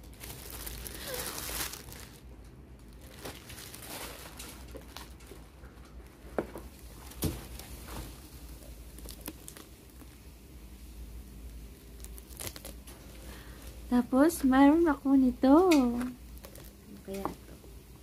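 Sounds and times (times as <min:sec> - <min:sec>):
tissue paper rustling: 0:00.0 - 0:02.2, 0:03.0 - 0:05.4, 0:06.8 - 0:10.3.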